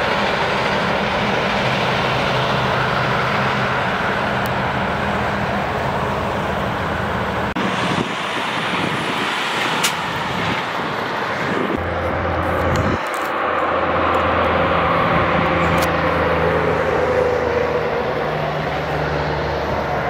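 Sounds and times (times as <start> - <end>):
truck diesel engines humming: 0.0 - 20.0
tyre and traffic noise: 0.0 - 20.0.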